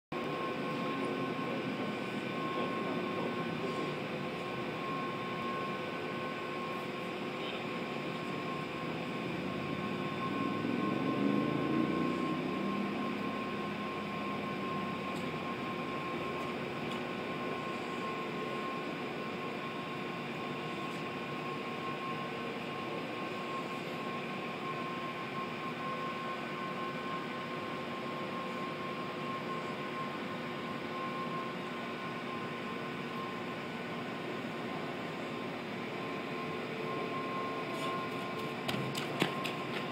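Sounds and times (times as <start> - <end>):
steady high whine: 0.1 - 39.9.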